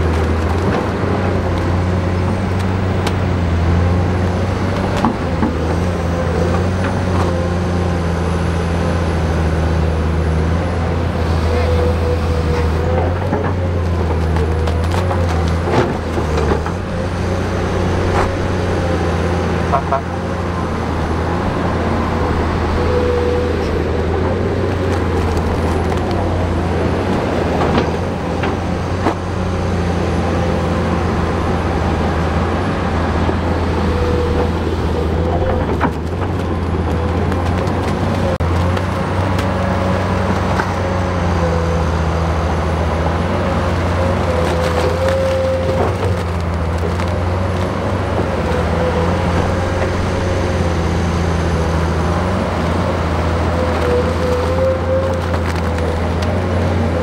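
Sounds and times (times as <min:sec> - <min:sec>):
bulldozer diesel engine running: 0:00.0 - 0:57.0.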